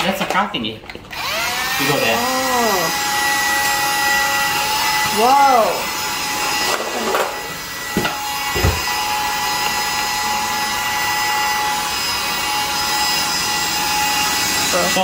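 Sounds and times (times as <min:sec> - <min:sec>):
handheld vacuum cleaner whining: 0:00.9 - 0:15.0
knocks: 0:08.0 - 0:08.9.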